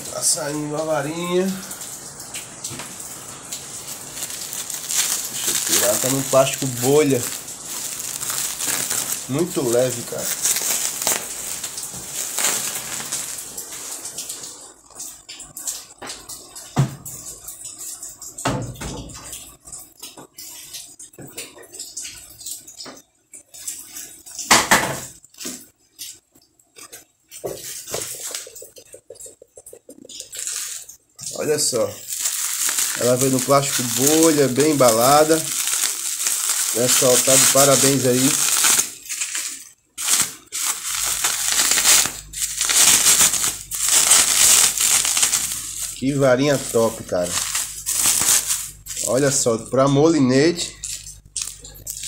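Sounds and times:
bubble wrap crinkling: 0:00.0 - 0:15.1, 0:26.8 - 0:52.0.

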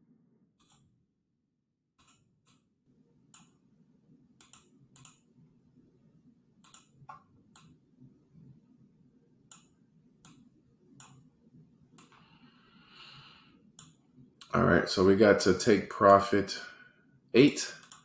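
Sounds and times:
computer mouse clicks: 0:00.6 - 0:00.9, 0:02.0 - 0:02.7, 0:03.3 - 0:03.6, 0:04.4 - 0:05.3, 0:06.6 - 0:07.8, 0:09.5 - 0:11.3, 0:11.9 - 0:12.2, 0:13.7 - 0:14.5, 0:17.8 - 0:18.0.

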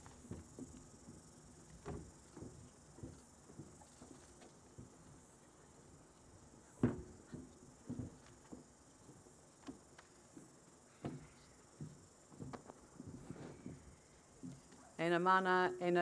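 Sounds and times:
footsteps on hollow stage: 0:00.0 - 0:05.2, 0:06.8 - 0:14.8
quiet outdoor background: 0:00.0 - 0:16.0.

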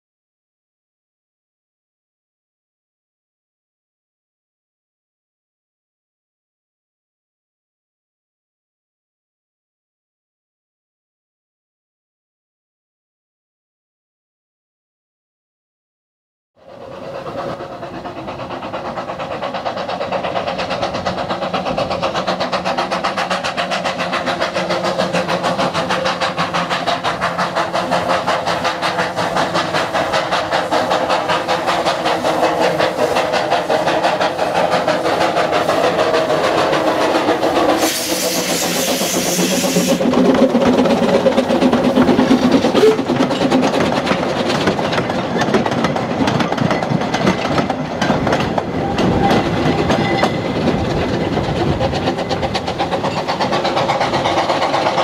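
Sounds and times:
steam locomotive exhaust beating: 0:16.6 - 0:55.0
steam hissing: 0:16.7 - 0:43.6, 0:48.7 - 0:55.0
train carriages clattering: 0:17.1 - 0:55.0.

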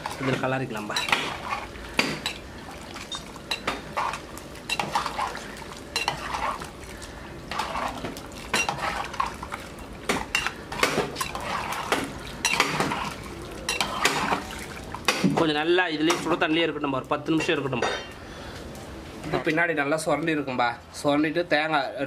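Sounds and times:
water swishing: 0:00.0 - 0:15.2
ladle clinking against clay pot: 0:04.7 - 0:05.2, 0:10.2 - 0:14.5.

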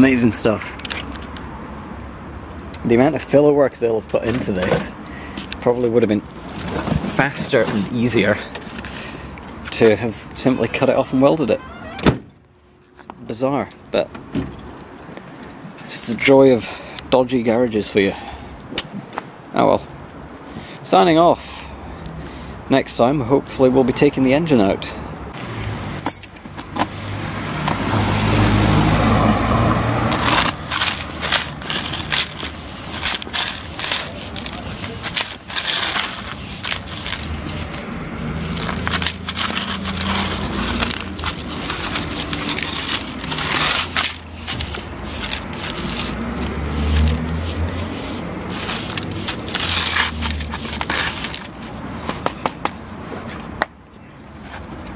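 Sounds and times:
brush sweeping on tarmac: 0:26.8 - 0:51.8.

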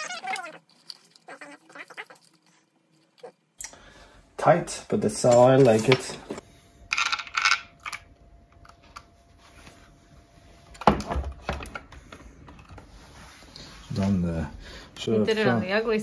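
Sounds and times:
plastic parts rustling and scraping: 0:05.2 - 0:08.0.

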